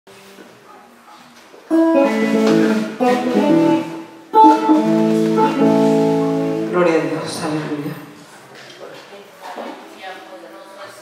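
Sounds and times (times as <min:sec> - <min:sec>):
electric guitar chords strummed: 0:01.7 - 0:07.4.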